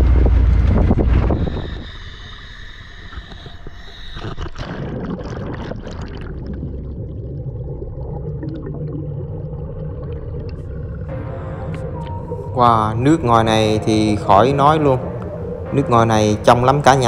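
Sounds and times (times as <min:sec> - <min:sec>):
muffled underwater rumble: 0:00.0 - 0:17.0
underwater bubbling: 0:00.8 - 0:16.7
water splashing: 0:03.2 - 0:12.5.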